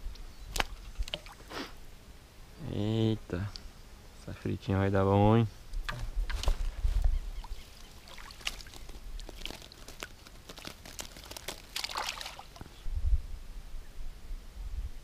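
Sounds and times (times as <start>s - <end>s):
water splashes: 7.4s - 12.6s.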